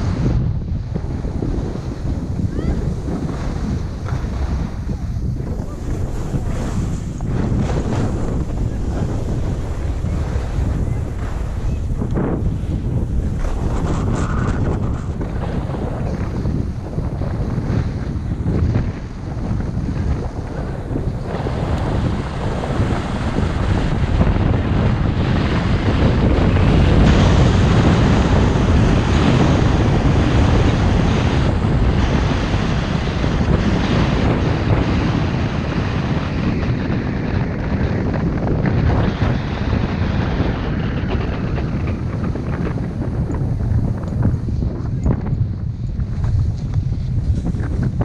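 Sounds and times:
wind rushing over microphone: 0.0s - 48.0s
skis hissing on snow: 5.3s - 15.3s.

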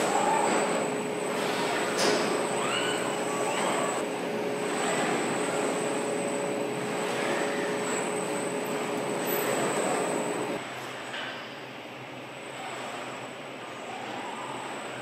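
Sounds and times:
machinery whining tones: 0.0s - 10.6s
factory machinery hum and hiss: 0.0s - 15.0s.

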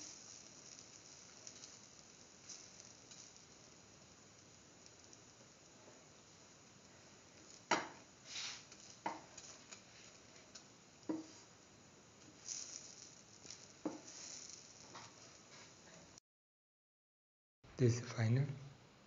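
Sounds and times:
sandwich sizzling in a pan: 0.0s - 16.2s
utensil scraping a pan: 8.3s - 9.2s.

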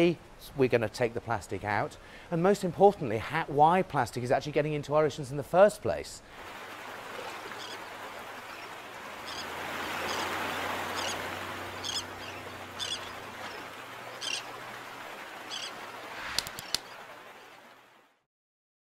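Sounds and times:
water washing: 6.3s - 18.1s
high bird calls: 7.2s - 14.7s, 15.4s - 17.6s
sharp clicks: 16.2s - 16.9s.

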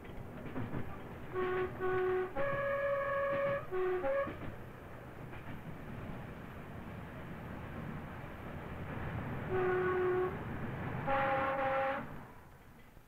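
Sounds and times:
train rumbling on the line: 0.0s - 13.0s
two-tone train horn: 1.3s - 4.5s, 9.5s - 10.4s, 11.0s - 12.2s.

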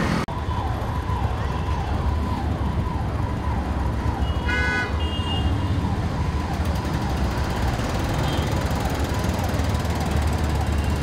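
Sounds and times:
road traffic noise: 0.0s - 11.0s
vehicle horn honking: 4.3s - 5.5s.

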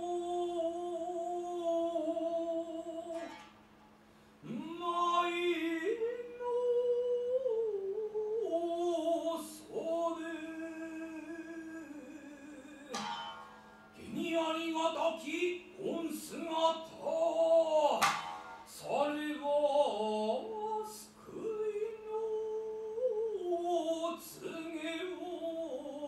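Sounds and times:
lute plucks: 1.9s - 3.7s, 11.2s - 16.6s, 17.5s - 19.0s.

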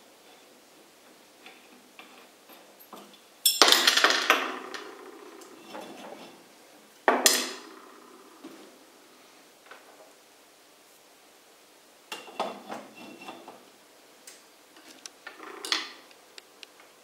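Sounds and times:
metal parts clinking: 2.5s - 4.9s.

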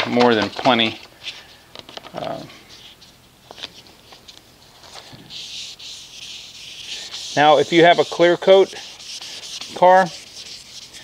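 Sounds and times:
wet sandpaper hissing on paint: 5.2s - 11.0s.

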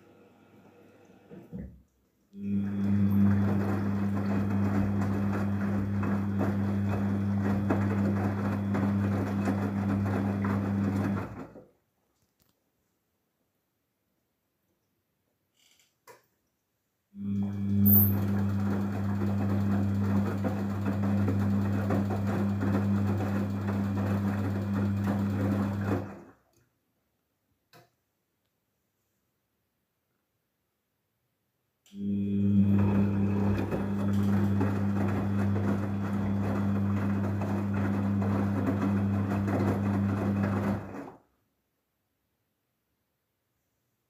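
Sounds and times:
washing machine motor hum: 2.4s - 11.6s, 17.2s - 26.4s, 31.9s - 41.2s
water and laundry sloshing: 2.8s - 11.6s, 32.7s - 41.1s.

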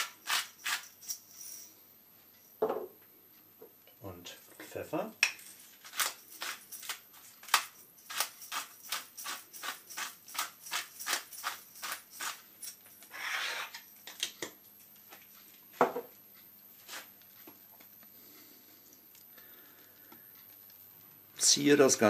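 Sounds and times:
pepper mill grinding: 0.0s - 1.6s, 5.6s - 14.4s
knock: 2.6s - 2.9s, 15.8s - 16.1s.

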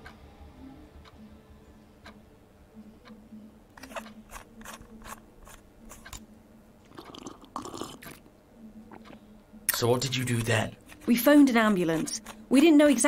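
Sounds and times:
clock ticking: 2.0s - 7.4s, 8.8s - 13.0s.

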